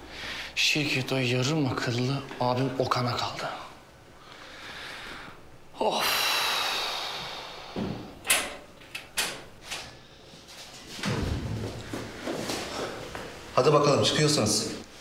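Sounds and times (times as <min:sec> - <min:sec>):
dull thud: 0:11.0 - 0:12.1.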